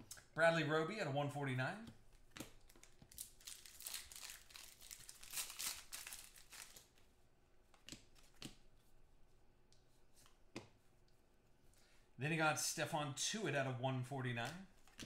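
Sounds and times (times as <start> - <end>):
cards rustling in hands: 2.0 - 8.9, 14.4 - 15.0.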